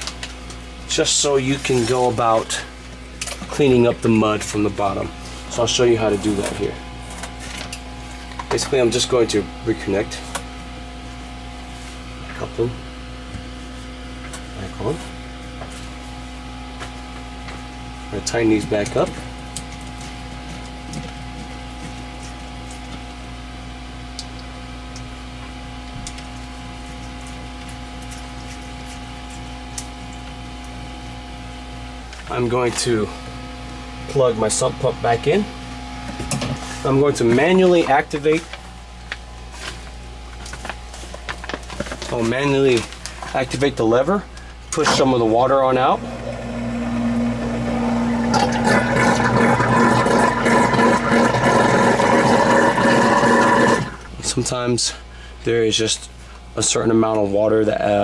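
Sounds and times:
electrical hum: 0.0 - 58.0.

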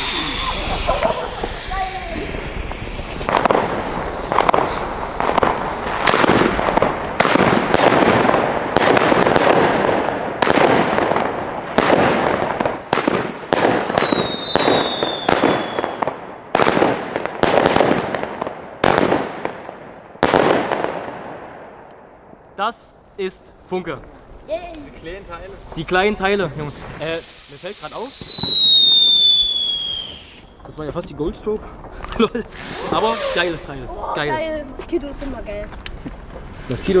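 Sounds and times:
firework bangs with rumbling tail: 0.0 - 21.8, 25.6 - 30.9.

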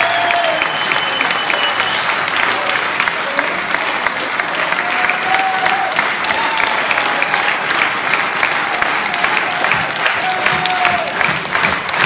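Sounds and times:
crowd clapping: 0.0 - 12.0.

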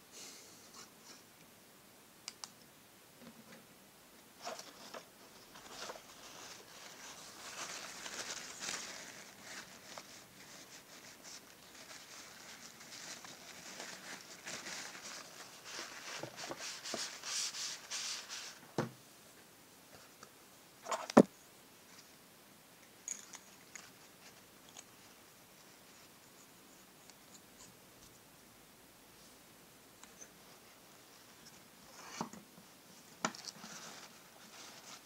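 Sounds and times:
paper towel crumpling: 4.4 - 18.6.

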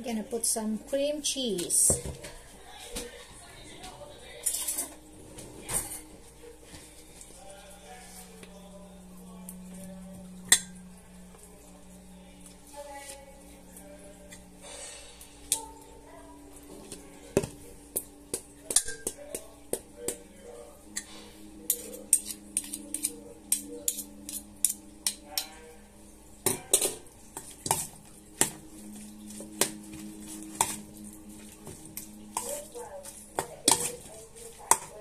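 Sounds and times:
metal spoon clinking in steel bowl: 18.6 - 20.2, 20.9 - 25.7, 31.9 - 35.0.

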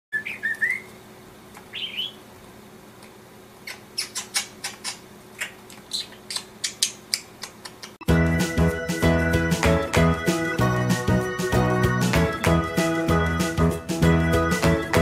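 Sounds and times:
budgerigar chirping: 0.2 - 0.9, 1.7 - 2.2, 3.6 - 7.3.

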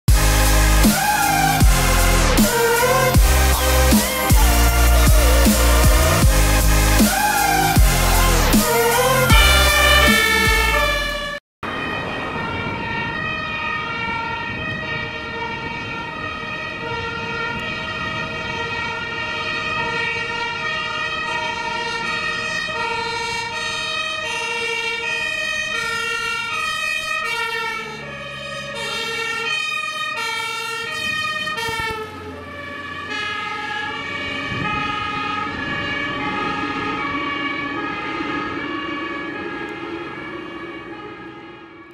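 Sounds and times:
electronic intro music: 0.1 - 11.4
fire engine two-tone sirens: 0.2 - 41.9.

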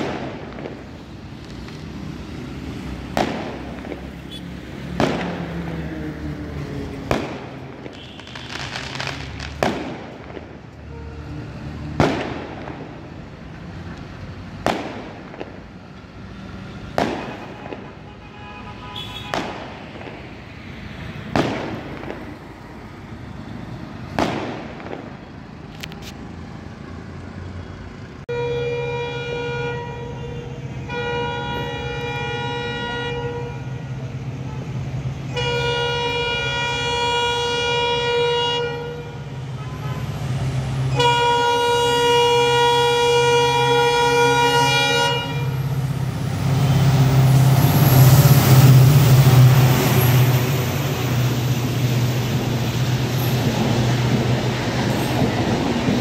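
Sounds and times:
firecracker bangs: 0.0 - 1.0, 3.1 - 5.6, 7.0 - 10.6, 11.9 - 13.1, 14.6 - 15.6, 16.9 - 18.1, 19.0 - 20.4, 21.2 - 22.4, 24.1 - 25.3
train horn blasts: 10.8 - 11.4, 28.3 - 33.9, 35.3 - 40.2, 40.9 - 45.7.

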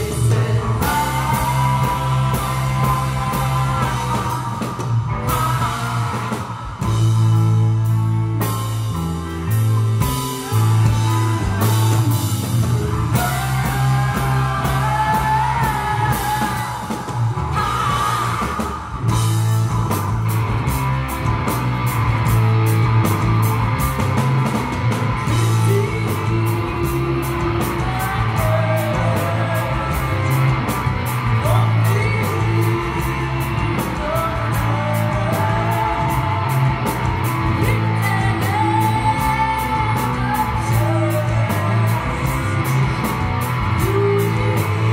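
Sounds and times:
woman singing: 0.0 - 7.1, 10.3 - 19.4, 25.2 - 30.7, 31.4 - 44.9
live rock band playing: 0.0 - 44.9.

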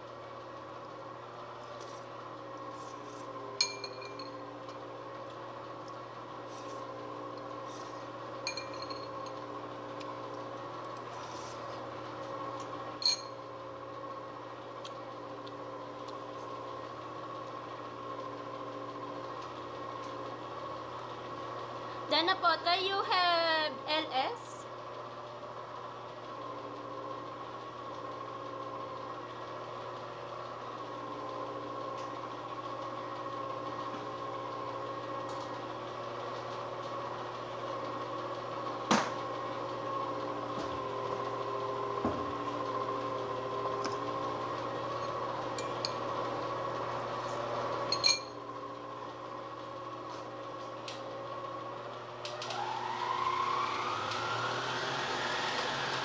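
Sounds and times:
kitchen appliance humming: 0.0 - 56.0
electric motor spinning up: 52.3 - 56.0.

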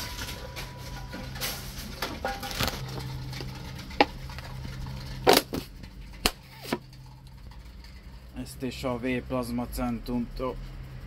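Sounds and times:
low motor hum: 0.0 - 11.0
can rattling and clattering: 0.1 - 8.4.

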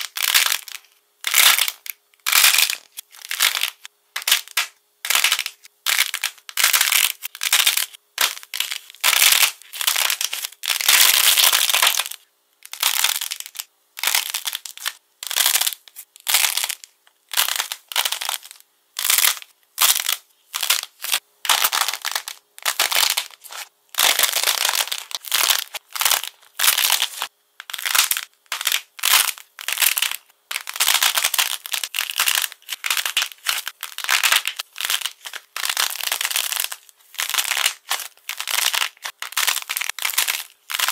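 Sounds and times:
glossy coating cracking and crinkling: 21.6 - 40.9.

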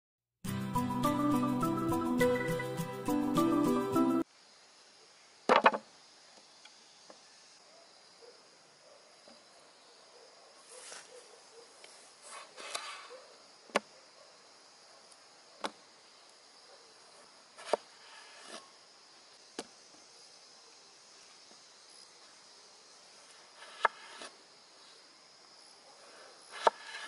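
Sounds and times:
insects buzzing: 2.2 - 27.0
cleaver chopping on wooden board: 26.6 - 27.0.

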